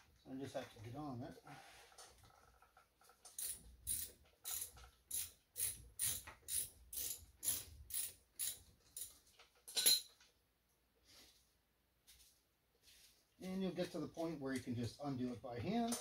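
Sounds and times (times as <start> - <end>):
ratchet wrench clicking: 3.3 - 9.2.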